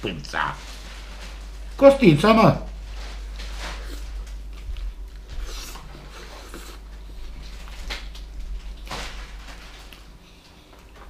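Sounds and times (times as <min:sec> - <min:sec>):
man chewing meat: 0:02.7 - 0:11.0.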